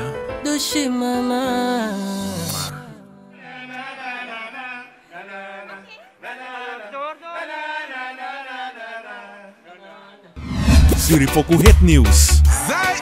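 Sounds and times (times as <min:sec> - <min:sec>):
men singing unaccompanied: 0:02.4 - 0:10.4, 0:12.6 - 0:13.0.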